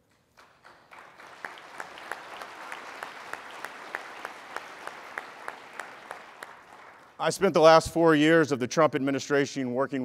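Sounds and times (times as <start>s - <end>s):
audience applause: 0.4s - 7.6s.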